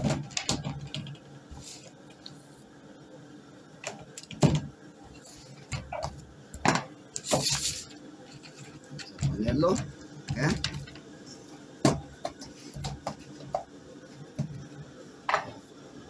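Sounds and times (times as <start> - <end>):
kitchen knocks and thumps: 5.7 - 7.4, 11.8 - 13.7, 15.3 - 15.6.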